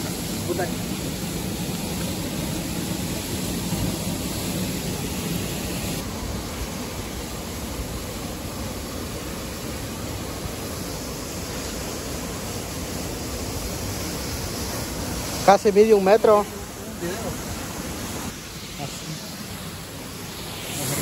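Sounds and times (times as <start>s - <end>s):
water pouring from dam outlet: 0.0s - 21.0s.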